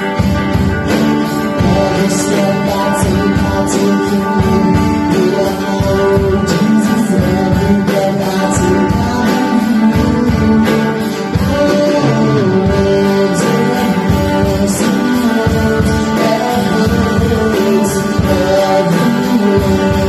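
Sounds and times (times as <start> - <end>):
upbeat worship song by band: 0.0 - 20.0.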